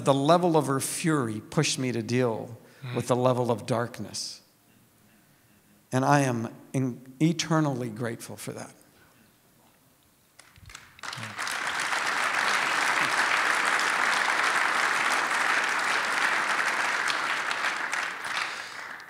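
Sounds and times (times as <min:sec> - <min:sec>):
audience applauding: 0:10.4 - 0:19.0.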